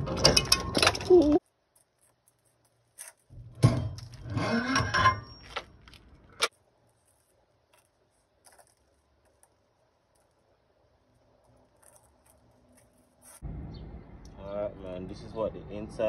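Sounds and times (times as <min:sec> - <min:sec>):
metal scraping and grinding: 0:03.0 - 0:05.8
sharp metal clank: 0:03.6 - 0:05.5
metal squeal: 0:04.1 - 0:05.5.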